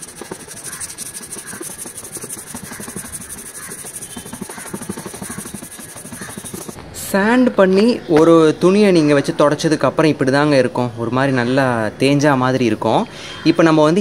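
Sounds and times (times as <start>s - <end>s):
sanding sponge rubbing plastic: 0.0s - 6.8s.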